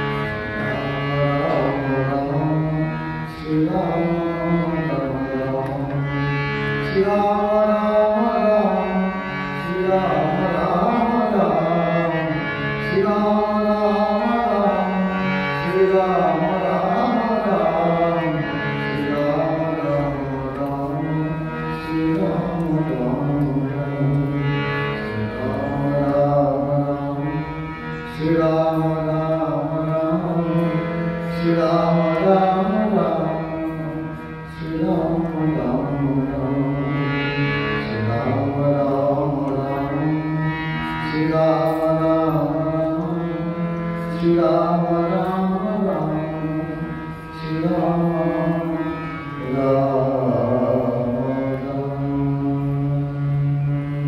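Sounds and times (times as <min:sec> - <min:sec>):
man singing: 0:00.0 - 0:06.2, 0:06.8 - 0:54.0
harmonium drone: 0:00.0 - 0:54.0.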